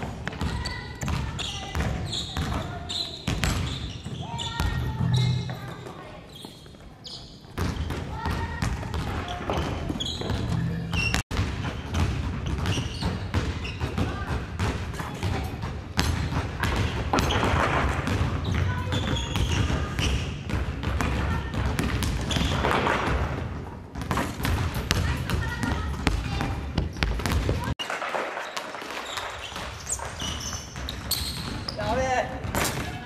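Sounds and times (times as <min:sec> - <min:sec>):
basketballs bouncing on wooden floor: 0:00.0 - 0:33.0
children's voices: 0:04.2 - 0:07.2, 0:08.0 - 0:09.9, 0:24.9 - 0:26.8.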